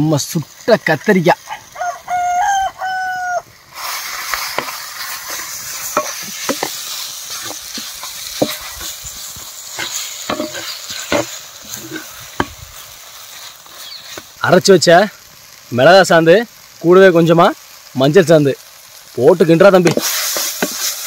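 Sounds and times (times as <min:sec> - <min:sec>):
vegetables sizzling in oil: 0:00.0 - 0:21.0
rooster crowing: 0:01.5 - 0:03.5
wooden masher scraping pot: 0:04.4 - 0:09.1, 0:09.8 - 0:12.6.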